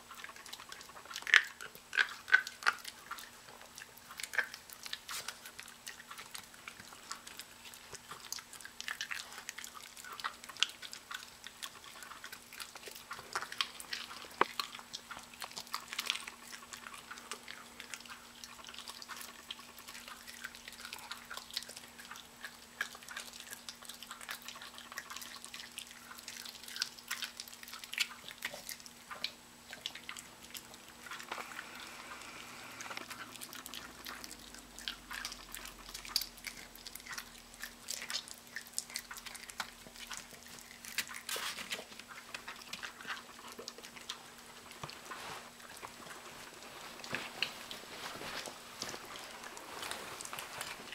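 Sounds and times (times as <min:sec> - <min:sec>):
dog chewing raw meat: 0:00.0 - 0:50.9
faint steady hum: 0:00.0 - 0:50.9.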